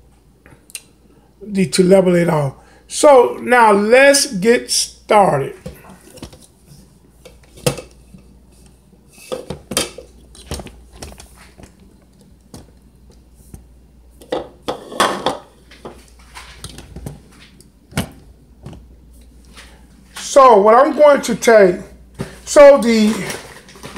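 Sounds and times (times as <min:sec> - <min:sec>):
utensils and bowls clattering: 0:09.1 - 0:11.2, 0:14.2 - 0:17.1.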